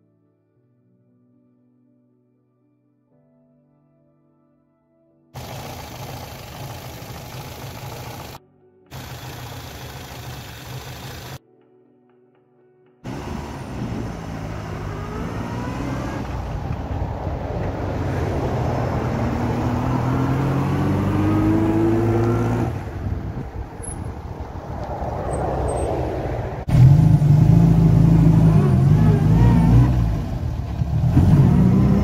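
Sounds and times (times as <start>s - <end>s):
car engine accelerating: 5.4s - 11.4s, 13.1s - 32.0s.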